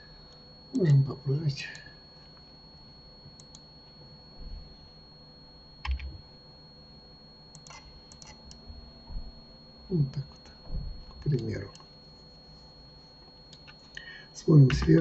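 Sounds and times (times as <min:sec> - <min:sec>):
faint high whine: 0:00.0 - 0:15.0
keyboard keystrokes: 0:05.8 - 0:06.1.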